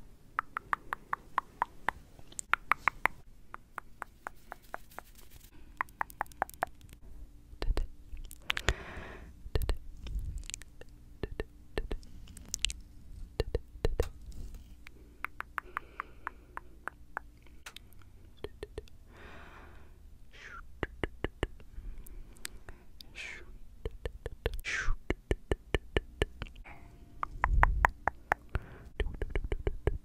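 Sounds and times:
tongue clicks: 0.3 - 5.2, 5.8 - 7.0, 7.6 - 8.8, 9.5 - 9.8, 10.4 - 12.8, 13.4 - 14.1, 14.8 - 19.0, 20.5 - 21.7, 22.3 - 30.0
breathy whispers: 21.6 - 23.7.

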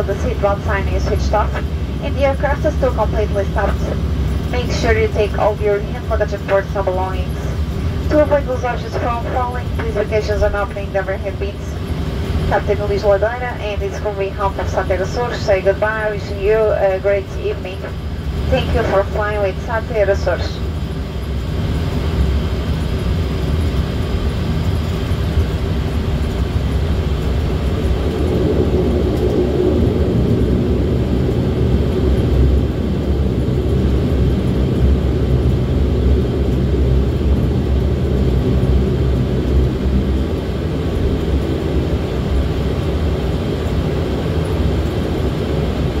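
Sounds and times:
turboprop engines droning: 0.0 - 46.0.

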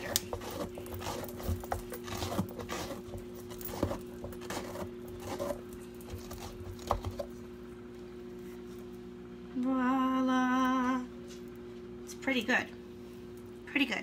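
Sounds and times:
scraper scratching pumpkin flesh: 0.0 - 7.4.

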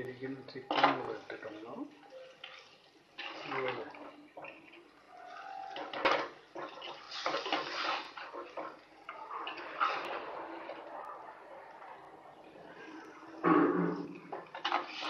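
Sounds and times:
wet sizzling and spoon scraping: 0.8 - 11.8, 14.1 - 15.0.

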